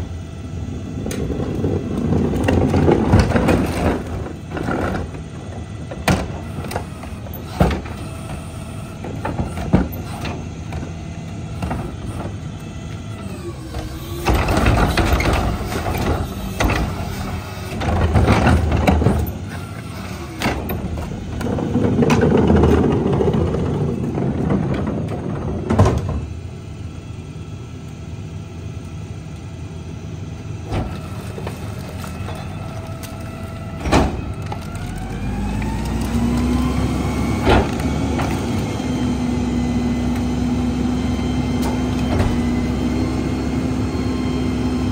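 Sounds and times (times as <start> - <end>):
garbage truck engine idling: 0.0 - 44.9
carts banging against hopper: 1.0 - 8.4, 13.8 - 26.3, 30.7 - 36.4
garbage tumbling into hopper: 1.1 - 5.4, 30.7 - 38.7.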